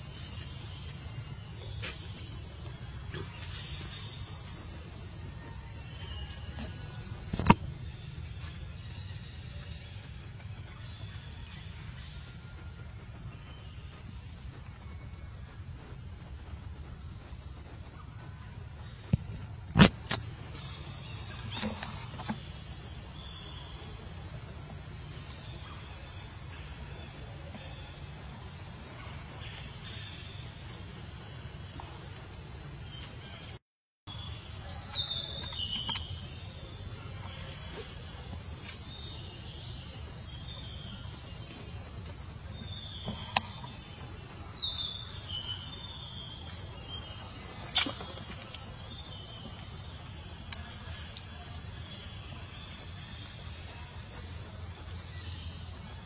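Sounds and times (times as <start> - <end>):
low background rumble: 0.0 - 33.5.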